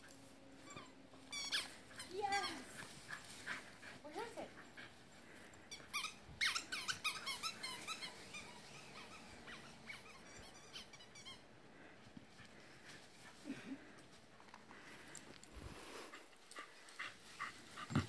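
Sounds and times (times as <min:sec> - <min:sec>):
small dog whining and yipping: 0:00.6 - 0:02.6, 0:06.0 - 0:11.4.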